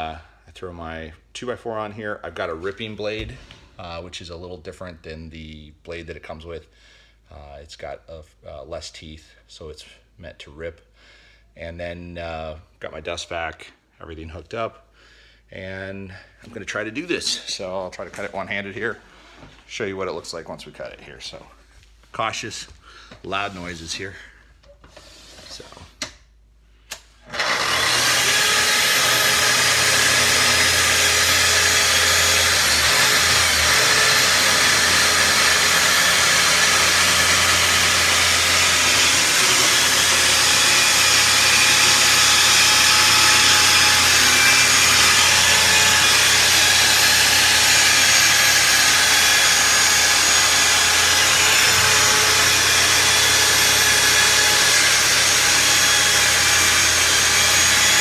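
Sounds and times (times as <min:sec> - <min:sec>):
dust extractor running: 0:27.3 - 0:58.0
track saw cutting wood: 0:27.3 - 0:58.0.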